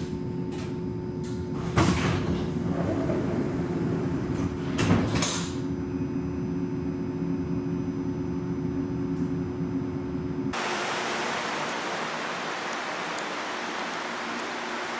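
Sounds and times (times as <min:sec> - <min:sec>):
ventilation fan hum: 0:00.0 - 0:14.9
steady rush of air: 0:10.5 - 0:14.9.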